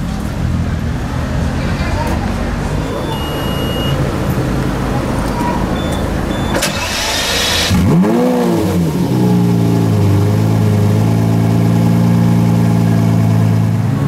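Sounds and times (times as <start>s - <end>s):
car engine starting and idling: 0.1s - 14.0s.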